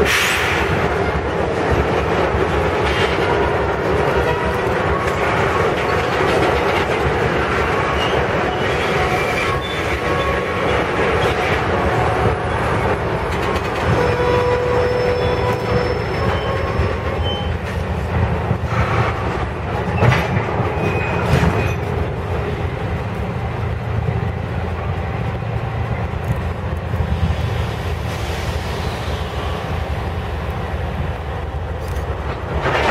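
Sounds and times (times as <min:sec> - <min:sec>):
diesel locomotive rumble: 0:00.0 - 0:32.9
freight train rolling: 0:00.0 - 0:32.9
train squeal: 0:07.4 - 0:19.2, 0:19.8 - 0:22.1, 0:27.4 - 0:29.8.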